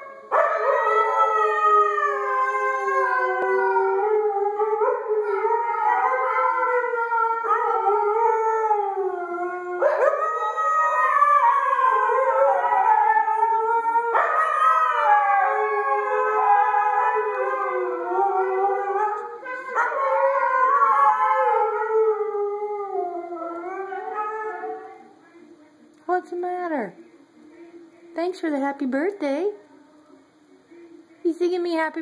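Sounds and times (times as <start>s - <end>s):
huskies howling: 0.0s - 25.1s.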